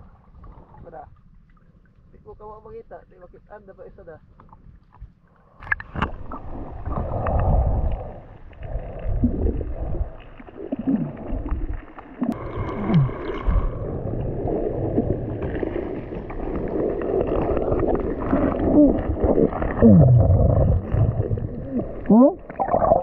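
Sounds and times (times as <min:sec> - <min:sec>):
underwater rumbling and gurgling: 0:00.0 - 0:23.0
small clicks underwater: 0:04.3 - 0:06.3.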